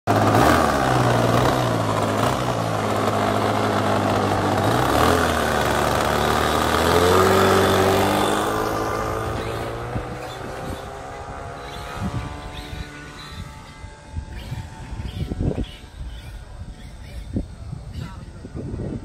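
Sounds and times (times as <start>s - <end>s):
model plane engine running: 0.1s - 19.0s.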